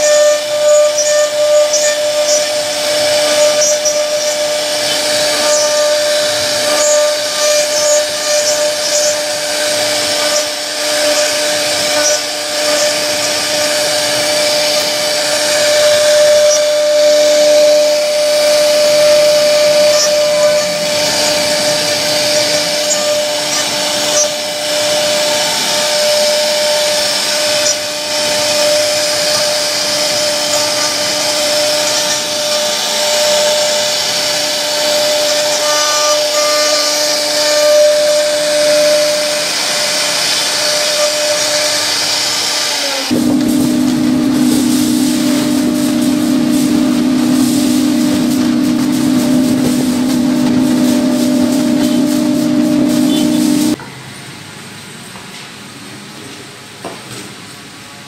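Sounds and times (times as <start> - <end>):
bit cutting wood hiss: 0.0 - 53.8
router spindle whine: 0.0 - 53.8.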